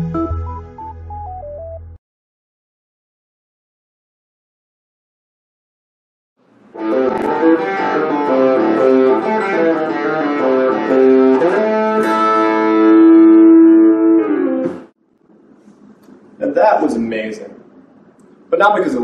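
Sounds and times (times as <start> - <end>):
electric guitar notes: 0.0 - 2.0, 6.8 - 14.9.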